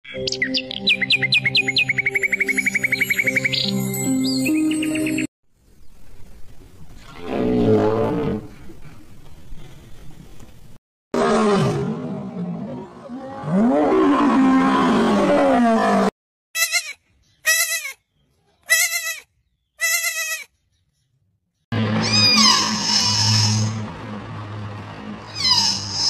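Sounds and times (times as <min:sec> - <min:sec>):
short high bleats: 0:16.6 - 0:18.0, 0:18.7 - 0:19.2, 0:19.8 - 0:20.5
falling animal call: 0:21.8 - 0:23.9, 0:25.3 - 0:26.0.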